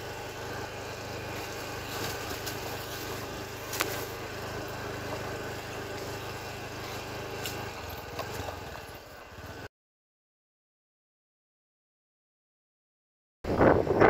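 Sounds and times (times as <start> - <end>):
motorcycle engine running: 0.0 - 9.7, 13.5 - 14.0
rushing wind noise: 13.4 - 14.0.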